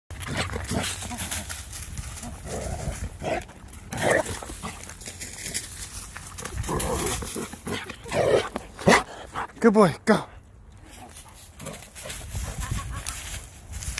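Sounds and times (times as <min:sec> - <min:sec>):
paws crunching dry leaves: 0:00.1 - 0:09.2, 0:10.8 - 0:13.9
dog breathing and grunting: 0:06.6 - 0:09.6.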